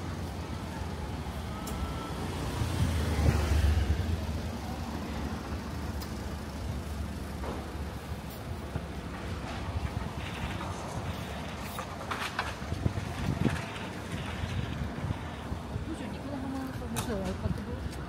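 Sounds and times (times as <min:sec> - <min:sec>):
steady traffic hum: 0:00.0 - 0:18.0
car driving past: 0:01.5 - 0:05.9.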